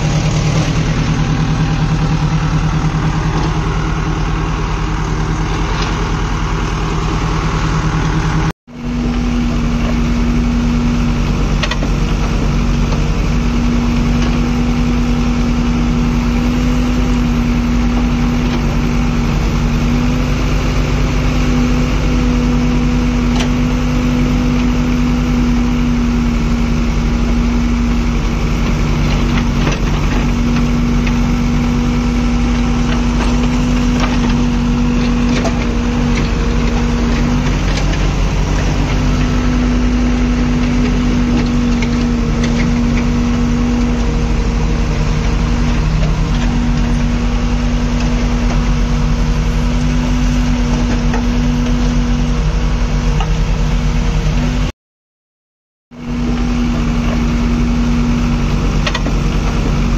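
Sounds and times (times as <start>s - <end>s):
diesel engine running: 0.0s - 54.7s, 55.9s - 59.9s
soil and stones knocking: 28.5s - 48.8s.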